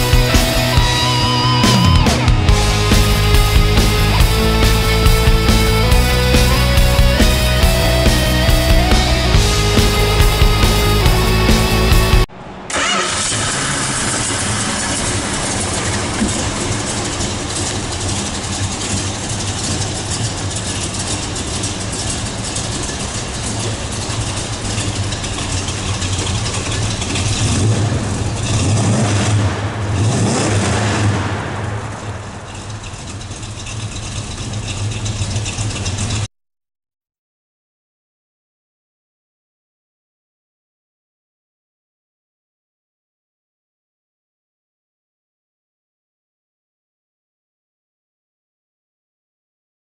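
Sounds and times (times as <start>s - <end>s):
car engine revving: 0.0s - 36.3s
car engine starting and idling: 0.0s - 36.3s.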